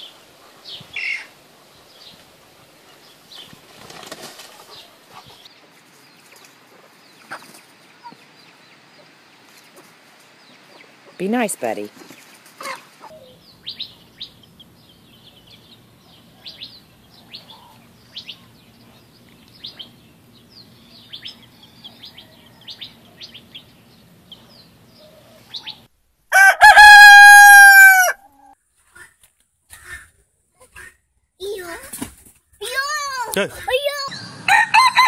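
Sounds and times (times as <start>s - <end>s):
chick peeping: 4.4s - 11.2s, 12.1s - 25.9s
rooster crowing: 21.4s - 23.0s, 26.3s - 28.6s, 34.2s - 35.0s.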